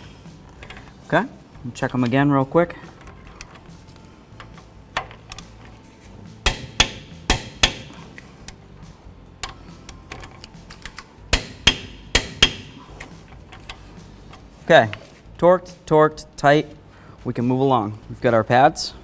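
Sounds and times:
torque wrench clicking: 0:06.4 - 0:08.3.

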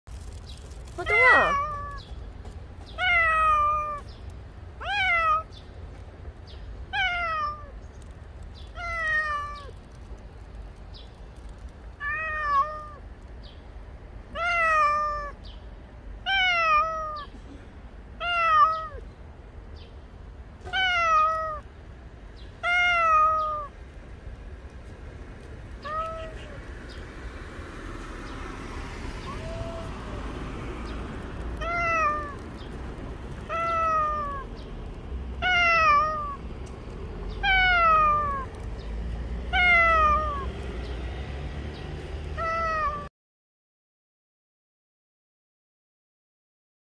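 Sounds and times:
cat meowing: 0:01.0 - 0:02.1, 0:03.0 - 0:04.0, 0:04.8 - 0:05.5, 0:06.9 - 0:07.8, 0:08.7 - 0:09.8, 0:12.0 - 0:13.0, 0:14.3 - 0:15.4, 0:16.2 - 0:17.3, 0:18.2 - 0:19.0, 0:20.6 - 0:21.7, 0:22.6 - 0:23.7, 0:25.8 - 0:26.6, 0:29.2 - 0:30.2, 0:31.6 - 0:32.4, 0:33.4 - 0:34.5, 0:35.4 - 0:36.4, 0:37.4 - 0:38.6, 0:39.5 - 0:40.6, 0:42.4 - 0:43.1.

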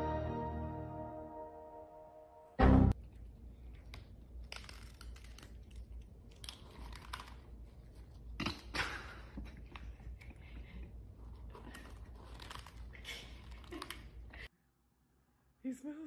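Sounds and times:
cats crunching dry kibble: 0:03.1 - 0:08.7, 0:09.3 - 0:14.4.

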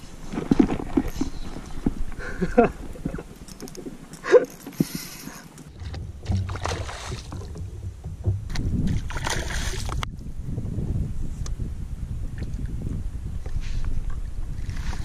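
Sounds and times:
water sloshing around a kayak: 0:00.0 - 0:10.1
wind rumble on microphone: 0:05.7 - 0:15.0.

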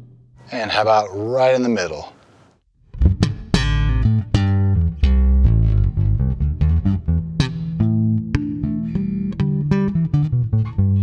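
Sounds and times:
bass guitar plucked low notes: 0:02.9 - 0:11.0.

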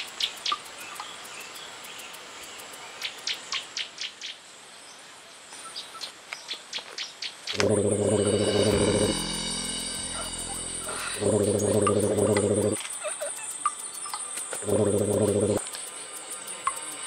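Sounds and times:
faint steady hiss: 0:00.0 - 0:17.0
loud low buzzing: 0:07.5 - 0:12.8, 0:14.6 - 0:15.6.

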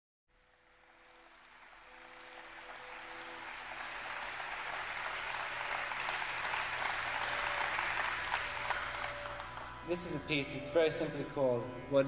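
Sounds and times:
audience applause: 0:00.6 - 0:10.2.

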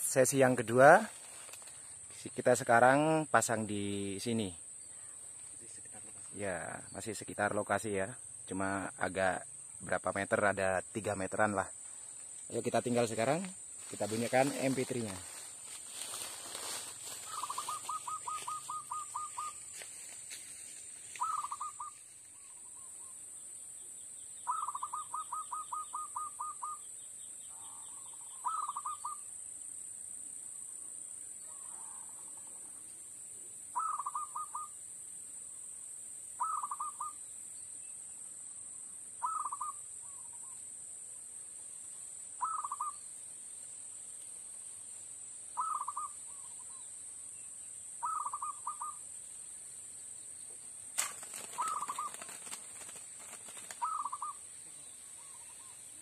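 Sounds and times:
steady high hiss: 0:00.0 - 0:24.5, 0:39.8 - 0:56.0
dove cooing: 0:17.2 - 0:19.6, 0:21.2 - 0:21.9, 0:24.5 - 0:26.8, 0:27.6 - 0:29.2, 0:33.8 - 0:34.7, 0:36.4 - 0:37.1, 0:45.6 - 0:46.4, 0:48.0 - 0:49.0, 0:51.0 - 0:56.0.

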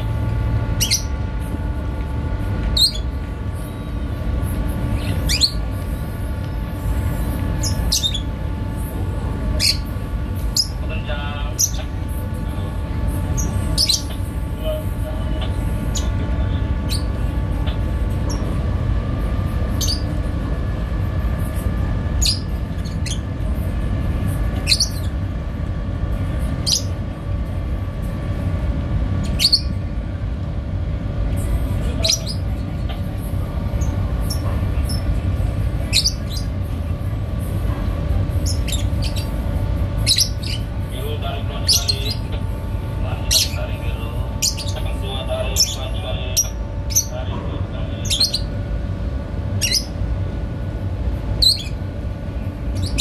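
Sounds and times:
small birds chirping: 0:00.0 - 0:01.8, 0:02.5 - 0:18.6, 0:19.6 - 0:20.3, 0:22.1 - 0:23.5, 0:24.3 - 0:25.3, 0:26.4 - 0:27.0, 0:29.2 - 0:29.9, 0:31.4 - 0:37.0, 0:38.2 - 0:47.3, 0:47.9 - 0:48.6, 0:49.5 - 0:50.0, 0:51.3 - 0:51.9, 0:52.7 - 0:53.0
boat engine rumbling: 0:00.0 - 0:53.0
mechanical whine: 0:00.0 - 0:53.0.

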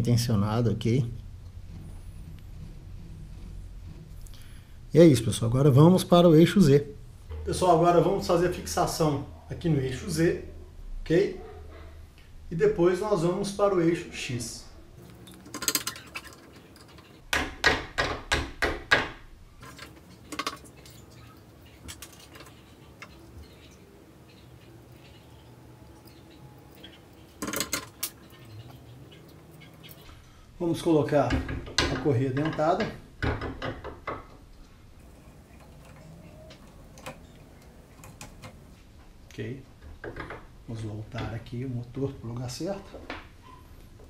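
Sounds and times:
sharp metal knocks: 0:17.2 - 0:19.3, 0:31.3 - 0:34.4.

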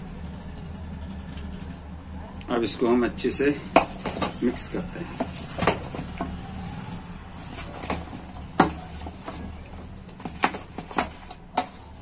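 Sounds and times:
knocks in a mixing vessel: 0:03.7 - 0:04.4.

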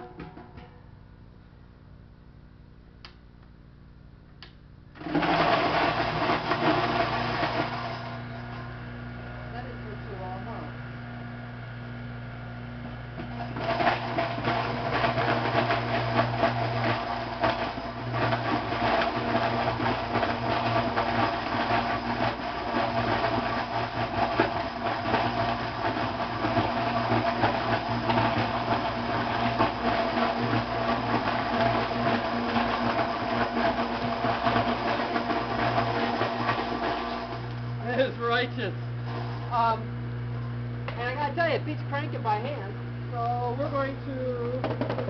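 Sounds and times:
fruit grinder motor humming: 0:04.9 - 0:45.0
apples crunching in grinder: 0:13.2 - 0:39.6.

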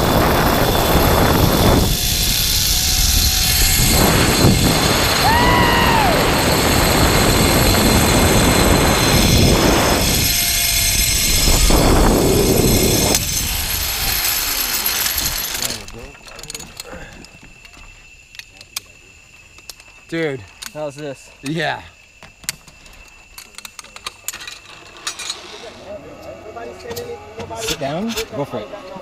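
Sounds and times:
wind rushing on microphone: 0:00.0 - 0:16.2
zip-line trolley running on cable: 0:00.0 - 0:29.0.

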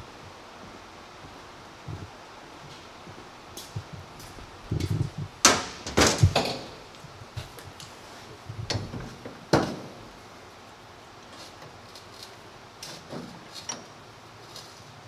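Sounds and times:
metal clanks and knocks: 0:05.4 - 0:06.9, 0:08.7 - 0:10.1.

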